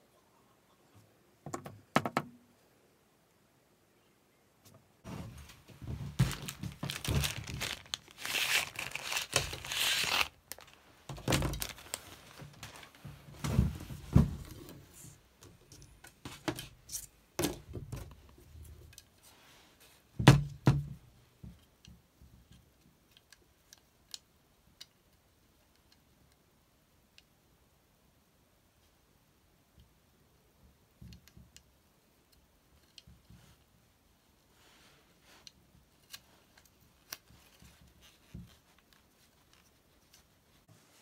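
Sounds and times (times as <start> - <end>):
knocks and thumps on racket frame: 1.4 - 2.4
crinkling tearing rustle: 6.1 - 13.0.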